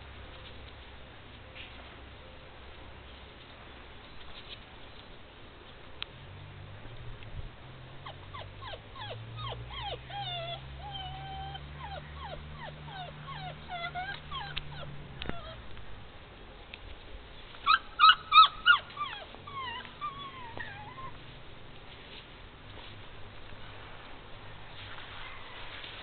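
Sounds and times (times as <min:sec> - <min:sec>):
puppy whining: 0:08.0 - 0:15.6, 0:17.6 - 0:21.3
puppy yipping: 0:08.0 - 0:15.6, 0:17.6 - 0:21.2.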